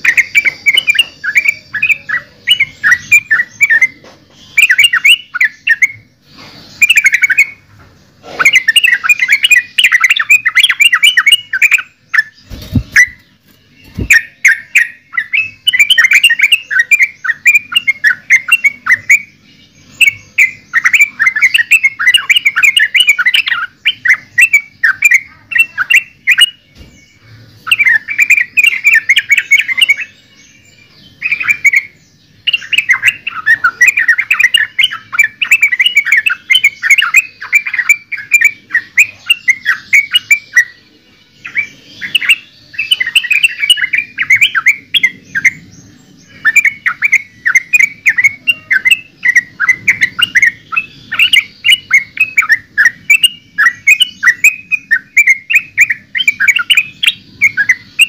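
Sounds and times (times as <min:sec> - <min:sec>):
bird chattering song: 0:00.0 - 0:58.0.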